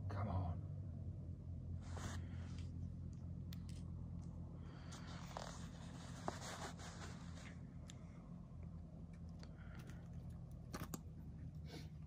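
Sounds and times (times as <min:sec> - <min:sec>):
steady low hum: 0:00.0 - 0:12.0
rustling and scraping handling noise: 0:01.8 - 0:07.9.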